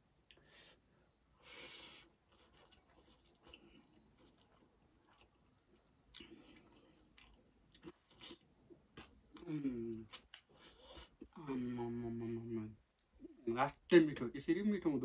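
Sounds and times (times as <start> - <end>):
chewing: 2.3 - 5.3, 6.1 - 9.5, 10.1 - 11.5.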